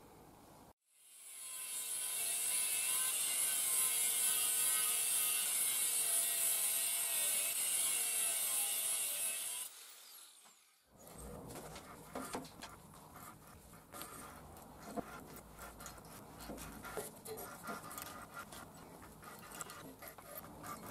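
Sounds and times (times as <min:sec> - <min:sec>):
angle grinder cutting steel: 0:01.1 - 0:10.6.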